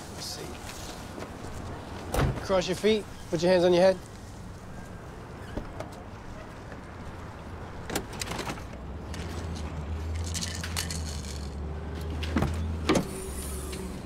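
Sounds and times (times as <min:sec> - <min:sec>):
items rustling and clinking: 0:08.0 - 0:12.7.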